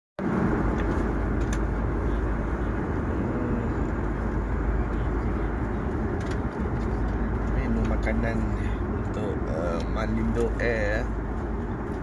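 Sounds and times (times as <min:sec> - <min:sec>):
airliner cabin noise: 0:00.2 - 0:12.0.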